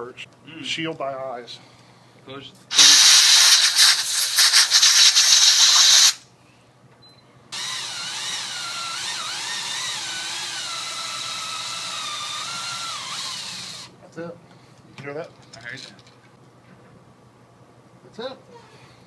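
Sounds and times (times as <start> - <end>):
power drill grinding into steel: 2.7 - 6.2, 7.6 - 13.9.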